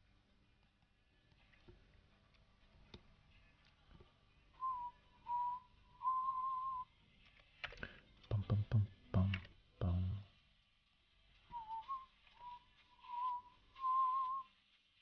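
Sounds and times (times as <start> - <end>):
person whistling short notes: 4.6 - 6.9, 11.5 - 14.6
faint clicks: 7.2 - 8.4.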